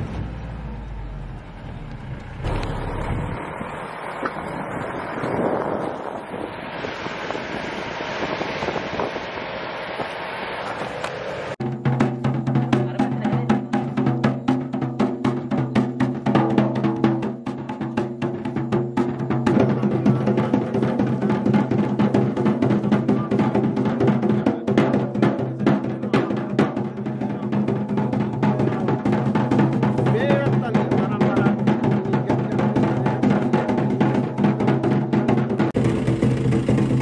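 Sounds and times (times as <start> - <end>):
steady low drone: 0.0 - 10.0, 35.8 - 37.0
barrel drum fast strokes: 11.6 - 37.0.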